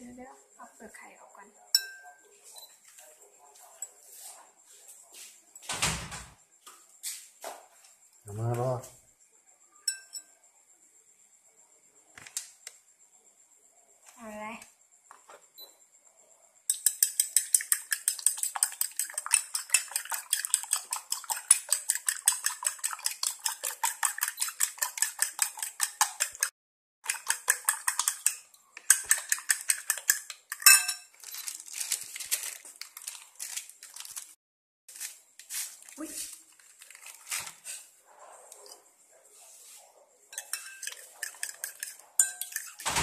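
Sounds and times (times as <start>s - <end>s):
fork clinking in ceramic bowl: 1.8s - 2.2s, 9.9s - 10.3s, 16.7s - 31.1s, 40.3s - 42.9s.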